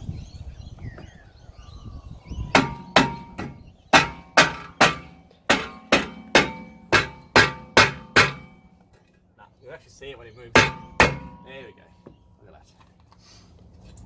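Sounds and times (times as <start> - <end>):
mallet striking metal brake disc: 2.6 - 8.8, 10.6 - 11.5.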